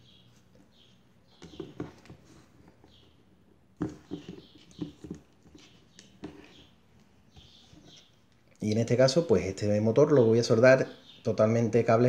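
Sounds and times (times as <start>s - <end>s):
hands handling wires: 0.0s - 8.6s.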